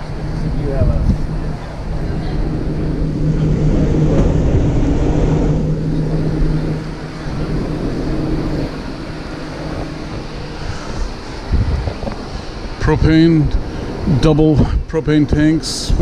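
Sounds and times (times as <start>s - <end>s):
constant background noise: 0.0s - 16.0s
low machine hum: 0.0s - 16.0s.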